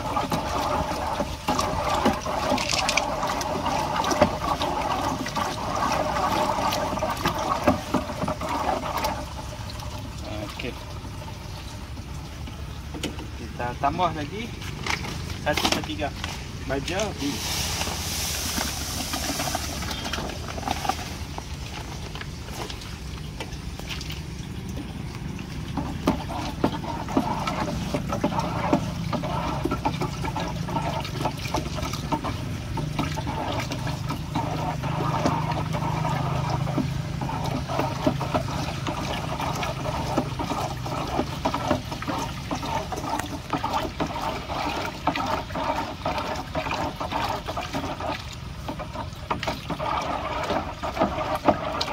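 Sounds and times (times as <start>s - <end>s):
water sloshing in plastic drum: 0.0s - 51.9s
fertilizer pouring hiss: 16.8s - 21.4s.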